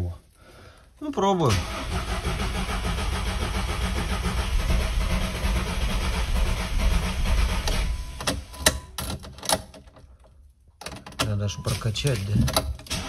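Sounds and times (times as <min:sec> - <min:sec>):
car engine running: 0:01.8 - 0:08.5.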